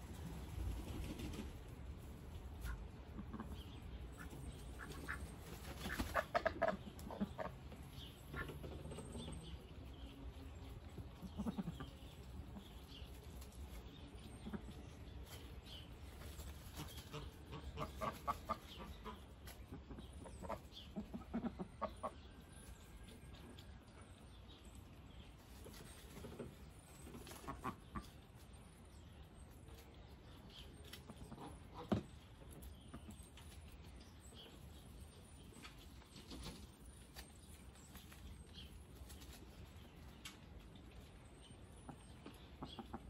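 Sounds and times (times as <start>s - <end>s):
ducks quacking: 2.6s - 7.6s, 11.2s - 12.0s, 16.7s - 22.2s.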